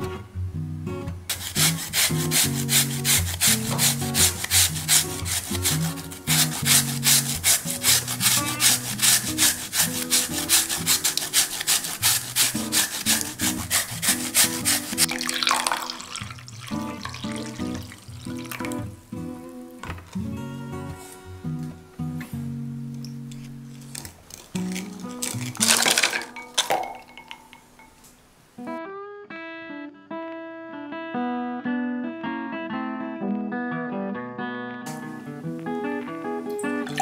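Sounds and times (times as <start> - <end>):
radish grating on metal grater: 1.3 - 15.1, 23.8 - 26.2
water pouring into bowl: 6.4 - 18.9, 24.4 - 28.0, 36.6 - 37.0.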